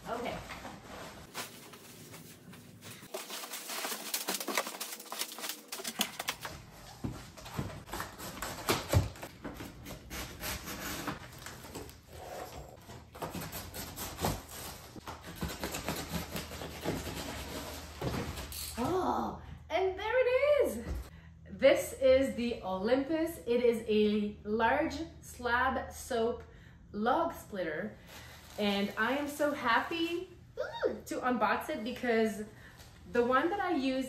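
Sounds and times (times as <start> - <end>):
plastic wrap and paper rustling: 0.0 - 12.0, 28.0 - 30.3.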